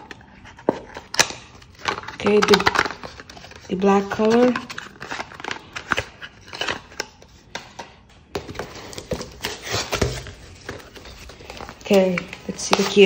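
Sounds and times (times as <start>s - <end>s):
cardboard boxes rustling and scraping: 8.4s - 13.0s.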